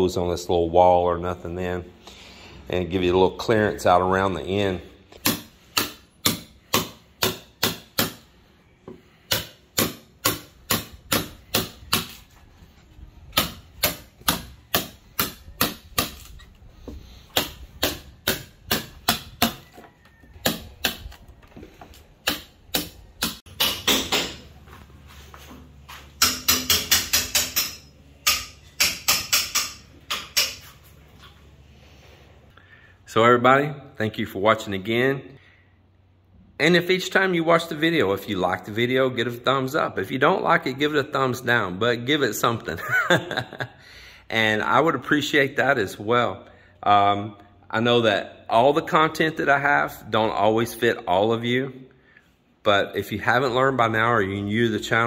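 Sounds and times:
hammer striking chisel in wood: 5.2s - 8.2s, 9.3s - 12.2s, 13.4s - 16.3s, 17.3s - 19.7s, 22.2s - 24.5s, 26.2s - 30.6s.

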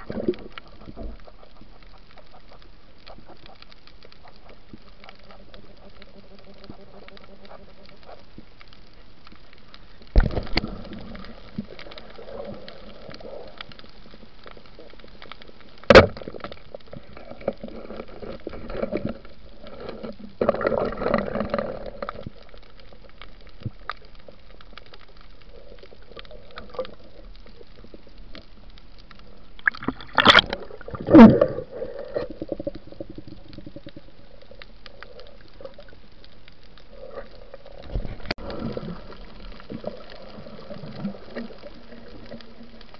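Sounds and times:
bubbling gurgles: 0.0s - 1.8s, 10.1s - 13.8s, 25.4s - 28.4s, 29.2s - 36.0s, 36.9s - 42.9s
faint underwater hiss: 0.0s - 42.9s.

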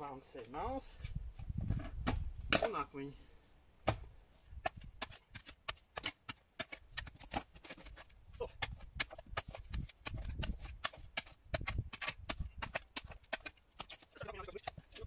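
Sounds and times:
spade scraping against stones: 4.4s - 15.0s.

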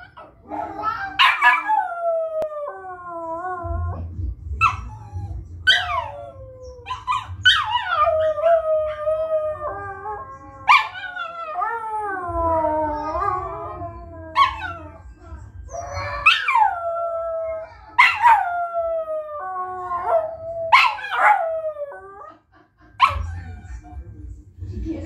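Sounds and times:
small dog howling: 4.6s - 22.0s.

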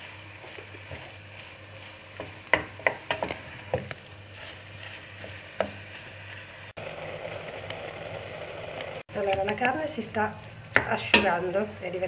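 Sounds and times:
meat frying: 0.0s - 12.0s.

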